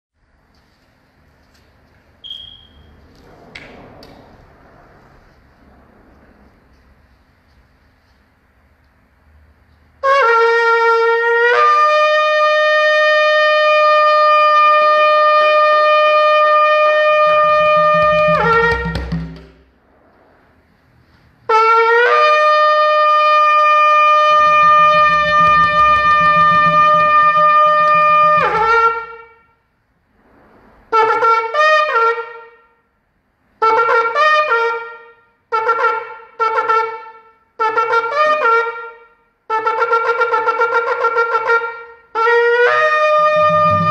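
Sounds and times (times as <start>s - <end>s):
horn blasts sliding up in pitch: 10.1s - 20.5s, 21.5s - 29.4s, 42.3s - 43.9s
short broken horn calls: 21.5s - 29.4s, 42.2s - 43.9s.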